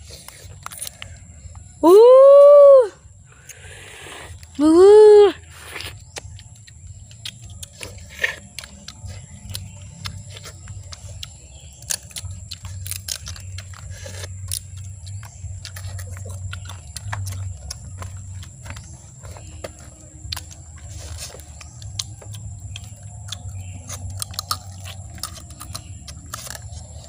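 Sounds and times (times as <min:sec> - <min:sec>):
low steady rumble: 0:05.4 - 0:27.0
crab shells cracking: 0:06.0 - 0:27.0.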